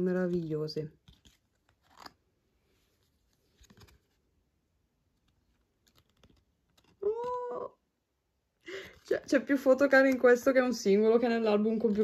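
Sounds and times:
photocards being handled: 0.0s - 4.4s, 5.0s - 7.6s, 11.3s - 12.0s.

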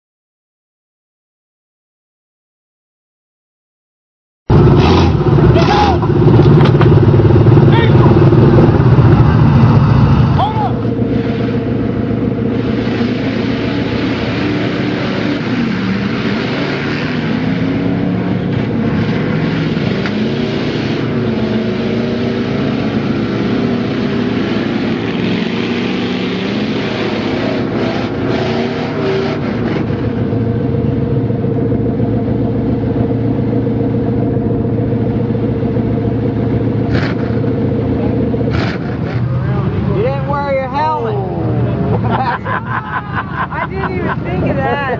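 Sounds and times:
truck engine revving: 4.5s - 44.9s
tyres churning through mud: 10.4s - 30.4s, 36.7s - 40.3s.

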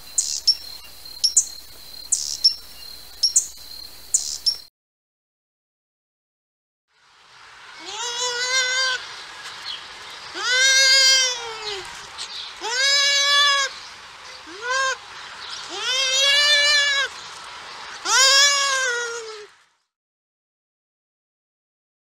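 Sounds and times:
animal bleat-like cries: 7.8s - 9.0s, 10.4s - 11.9s, 12.6s - 13.7s, 14.4s - 15.0s, 15.7s - 17.1s, 18.0s - 19.5s.

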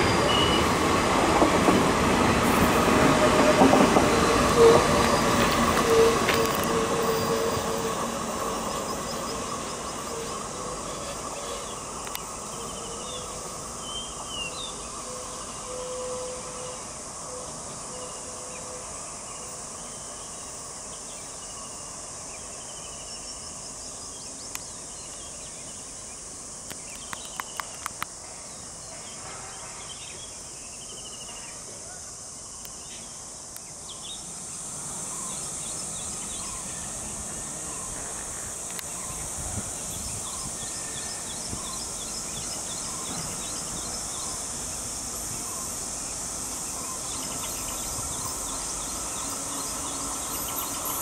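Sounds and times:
train coaches rolling past: 0.0s - 26.4s, 27.3s - 51.0s
high insect buzz: 4.2s - 51.0s.

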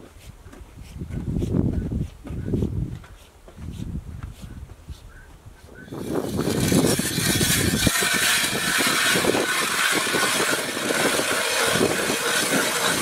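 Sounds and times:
ice auger scraping through ice: 5.9s - 13.0s.

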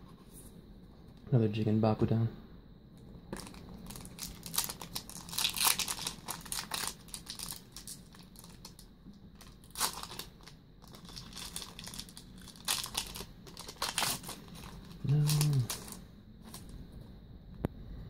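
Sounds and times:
foil wrappers crinkling and tearing: 3.4s - 16.7s.

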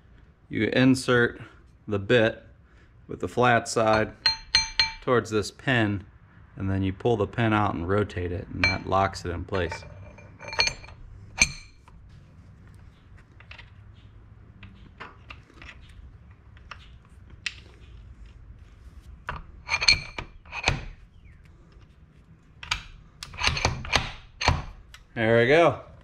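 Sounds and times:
steel clinks and clanks: 3.8s - 5.1s, 8.6s - 11.8s, 19.6s - 20.9s.

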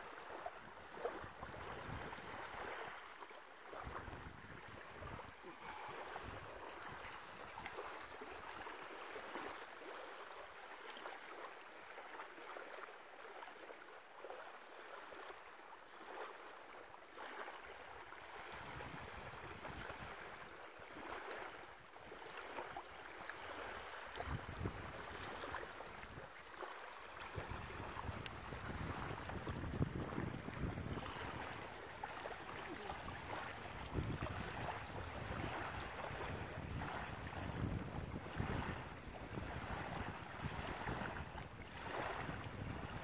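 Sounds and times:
small waves lapping on shore: 0.0s - 43.0s
wind buffeting microphone: 24.1s - 26.3s, 27.2s - 43.0s.

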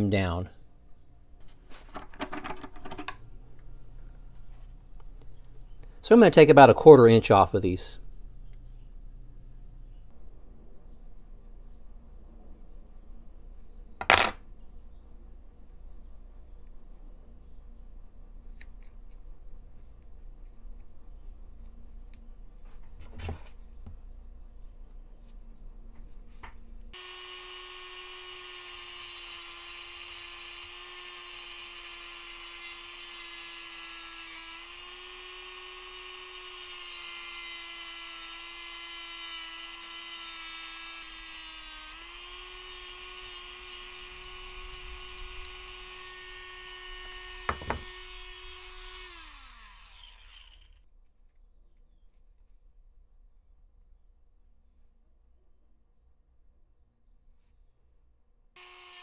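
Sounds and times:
cut-off wheel grinding screw: 27.0s - 50.8s, 58.6s - 59.0s
rotary tool whining: 27.0s - 50.8s, 58.6s - 59.0s.

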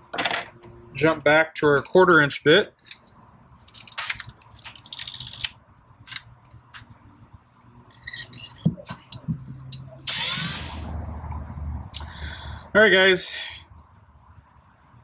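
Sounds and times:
drill whining while drilling: 10.1s - 10.8s.

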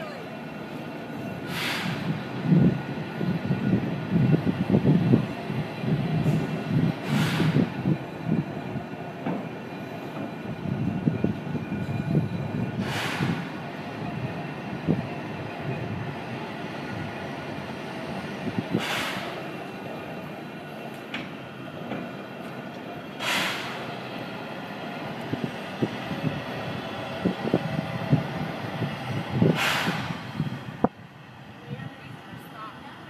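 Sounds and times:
steam hissing: 1.4s - 2.4s, 6.3s - 8.0s, 12.7s - 13.7s, 18.6s - 19.7s, 23.2s - 24.1s, 27.2s - 30.8s.

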